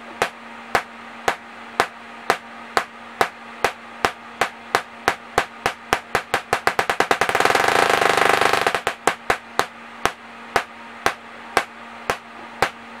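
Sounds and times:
faint steady hum: 0.0s - 13.0s
tesla coil arcs cracking: 3.6s - 9.4s.

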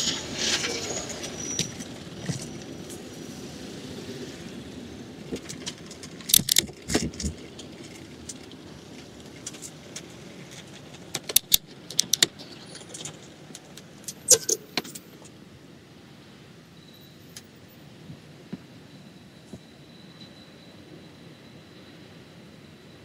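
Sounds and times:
city traffic noise: 0.0s - 23.0s
bicycle rattling over bumps: 5.1s - 13.8s.

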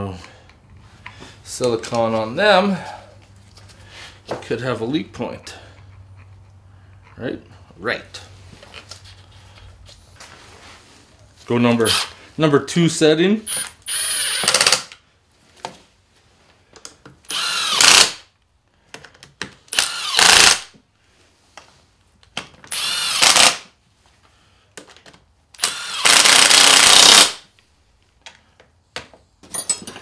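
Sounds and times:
impact driver whining and hammering: 13.5s - 14.9s, 19.7s - 20.7s, 22.7s - 23.7s, 25.6s - 27.4s.

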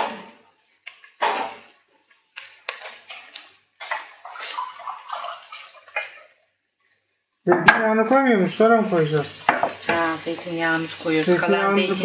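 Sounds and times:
kitchenware clinking and knocking: 9.4s - 10.0s.

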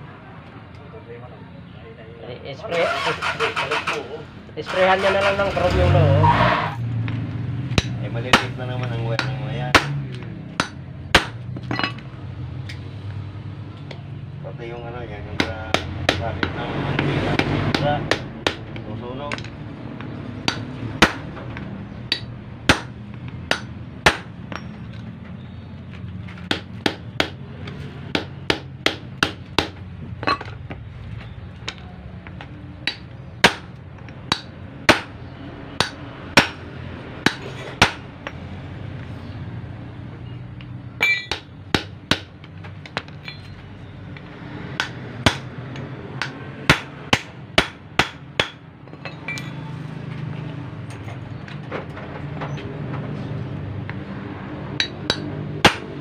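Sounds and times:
hammer striking metal: 7.7s - 12.0s, 20.4s - 21.3s, 22.1s - 24.8s, 32.8s - 35.2s, 35.8s - 38.4s, 41.0s - 42.3s, 44.8s - 49.7s, 54.8s - 56.0s.

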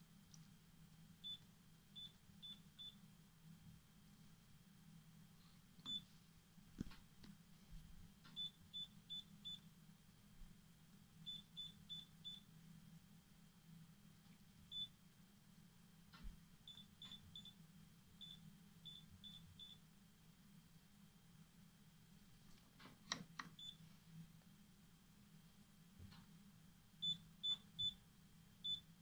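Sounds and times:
control panel beeps: 23.1s - 23.8s.

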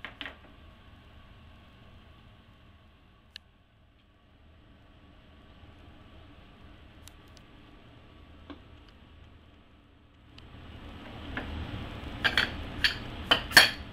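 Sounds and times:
low room noise: 0.0s - 13.9s
dishes clicking and clinking: 12.2s - 13.9s.

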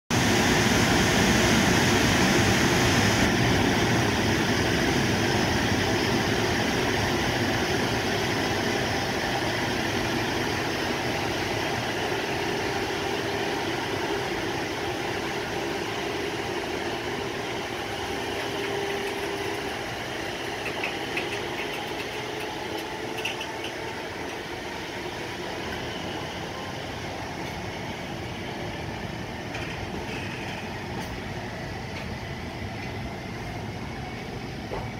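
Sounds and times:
electric locomotive passing: 0.2s - 34.9s
freight wagons rolling over rails: 18.0s - 24.4s.

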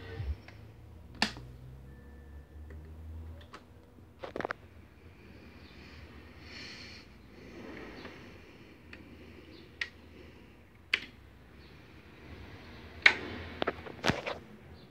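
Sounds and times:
switches and knobs clicking: 0.3s - 1.5s, 2.6s - 4.6s, 8.9s - 10.0s, 10.7s - 11.2s, 13.0s - 14.2s.

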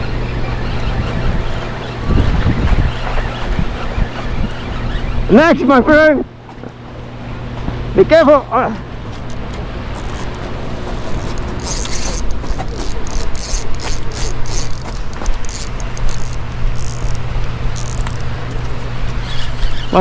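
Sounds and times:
fishing reel ratcheting clicks: 10.0s - 10.4s, 11.0s - 17.2s, 17.8s - 18.3s.

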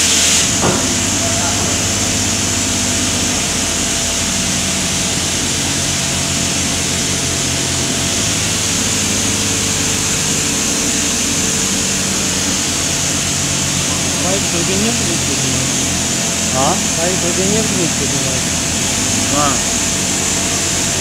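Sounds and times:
low machinery hum: 0.0s - 21.0s
high hiss: 8.4s - 20.2s
steady tones: 10.8s - 20.5s.

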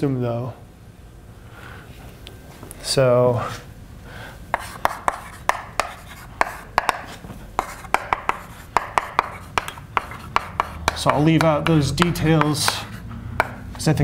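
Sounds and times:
chalk tapping and scratching: 4.5s - 13.9s.

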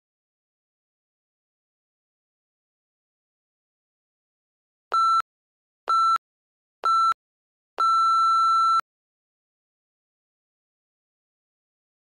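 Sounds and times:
long timer beep: 6.9s - 7.2s, 7.8s - 8.8s.

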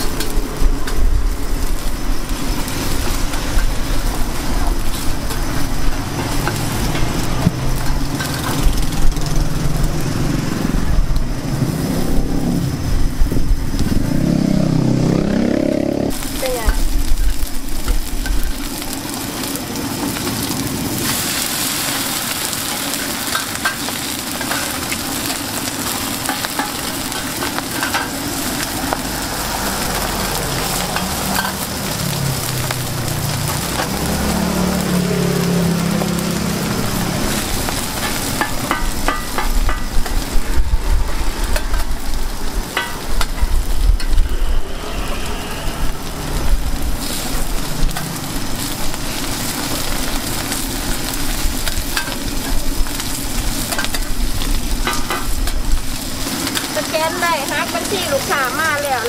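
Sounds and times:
batter sizzling in hot oil: 0.0s - 59.0s.

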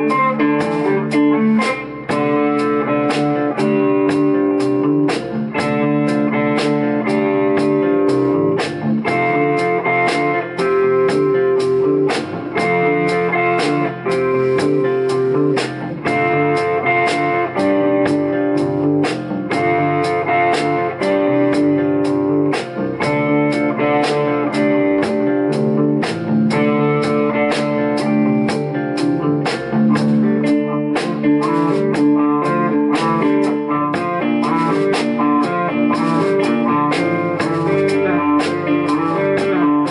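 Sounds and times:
drum kit with cymbal ticks: 0.0s - 39.9s
electric bass: 0.0s - 39.9s
electric guitars playing a riff: 0.0s - 39.9s.

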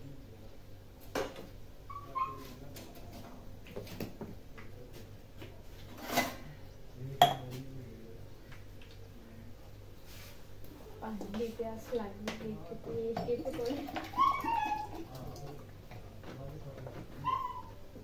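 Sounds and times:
high squeak: 1.9s - 2.5s.

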